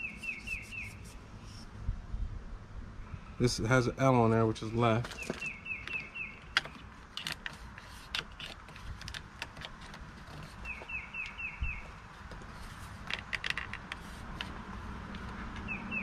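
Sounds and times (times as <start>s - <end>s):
bird chirping: 0.0s - 1.6s, 4.6s - 7.0s, 10.3s - 12.8s, 15.2s - 16.0s.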